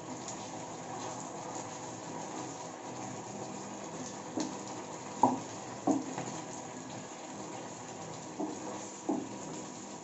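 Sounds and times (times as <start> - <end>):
spatula knocking against pan: 5.2 - 6.1, 8.4 - 9.3
wooden spatula stirring sauce: 8.4 - 9.3.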